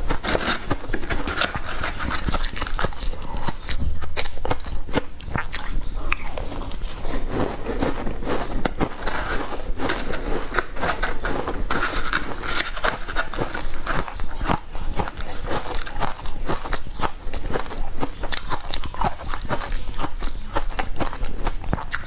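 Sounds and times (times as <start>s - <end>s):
metal spoon scraping bowl: 0.0s - 3.6s, 6.5s - 15.8s
crunching and chewing food: 0.0s - 22.0s.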